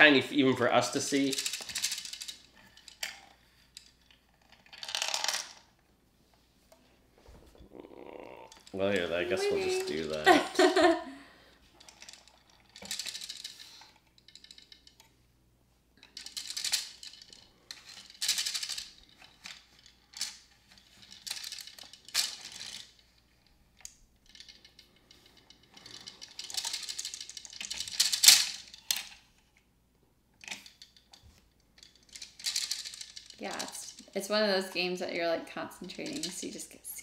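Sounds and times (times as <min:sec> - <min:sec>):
plastic tokens rattling: 0:00.0 - 0:05.7, 0:08.2 - 0:11.0, 0:11.7 - 0:15.1, 0:16.0 - 0:29.3, 0:30.4 - 0:37.0
plastic gears clicking: 0:00.8 - 0:05.6, 0:11.8 - 0:15.1, 0:16.0 - 0:23.2, 0:23.8 - 0:29.2, 0:30.4 - 0:34.2, 0:35.8 - 0:36.7.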